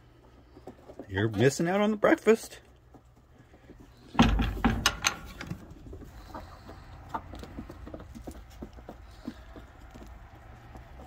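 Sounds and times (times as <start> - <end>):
chickens pecking and scratching: 0.0 - 11.0
loud knocks and rattles: 4.2 - 5.7.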